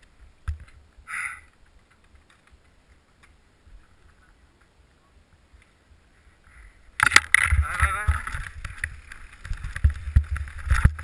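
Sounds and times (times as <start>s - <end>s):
mountain bike rolling on dirt trail: 6.2s - 11.0s.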